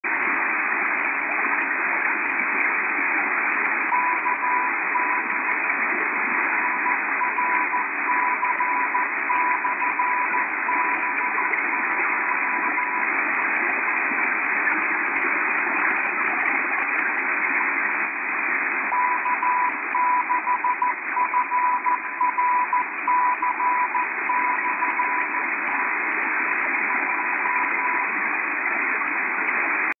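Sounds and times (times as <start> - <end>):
radio band noise hiss: 0.1 - 30.0
morse code tone: 3.9 - 5.4, 6.6 - 13.0, 18.9 - 25.4, 27.1 - 28.1.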